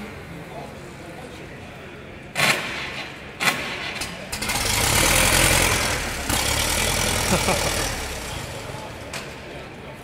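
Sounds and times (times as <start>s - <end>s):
tractor engine starting and running: 2.3s - 9.8s.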